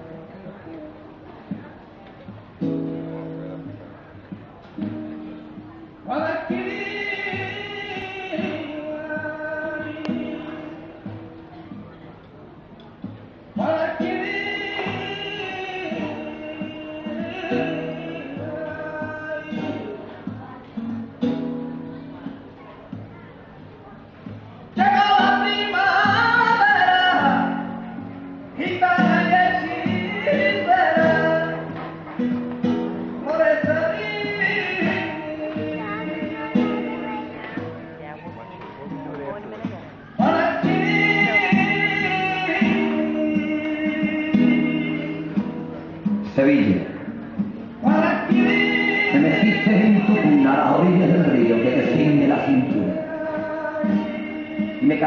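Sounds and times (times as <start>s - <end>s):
guitar: 0.0s - 55.0s
person singing flamenco: 0.1s - 12.3s, 12.9s - 23.2s, 24.2s - 55.0s
person singing long notes: 33.3s - 37.6s, 40.2s - 45.5s, 47.8s - 55.0s.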